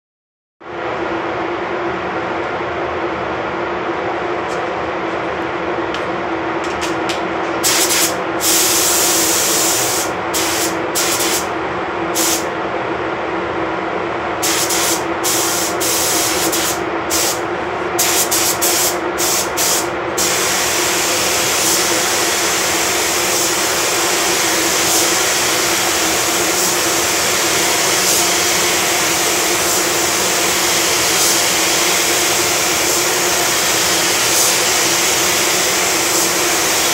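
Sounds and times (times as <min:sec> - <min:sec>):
ventilation drone: 0:00.6 - 0:36.9
paint spray gun hissing: 0:07.6 - 0:11.4, 0:14.4 - 0:17.4, 0:18.0 - 0:36.9.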